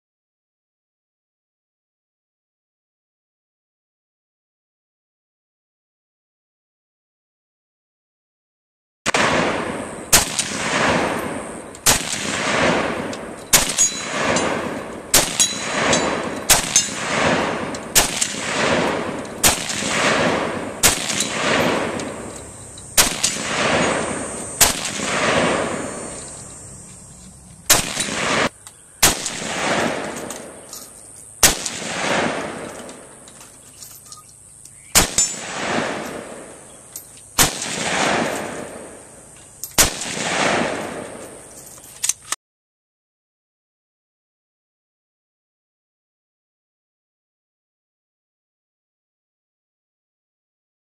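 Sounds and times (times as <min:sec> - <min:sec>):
rifle shots echoing: 0:09.1 - 0:33.3, 0:34.9 - 0:36.8, 0:37.4 - 0:39.2, 0:39.8 - 0:41.5.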